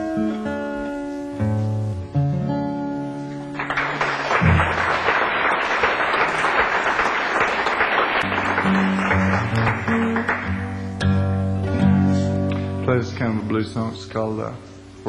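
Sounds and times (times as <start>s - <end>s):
acoustic guitar: 0.0s - 15.0s
audience applause: 3.6s - 10.6s.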